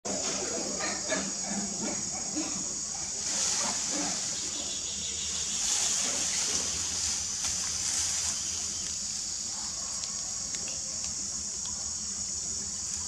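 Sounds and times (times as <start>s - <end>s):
high-pitched outdoor hiss: 0.1s - 13.0s
faint clicks: 9.8s - 11.8s.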